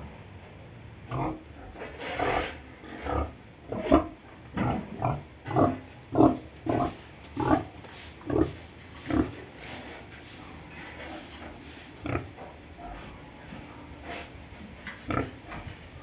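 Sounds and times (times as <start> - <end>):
pig grunting: 1.1 - 9.4, 12.0 - 13.1, 15.1 - 15.4.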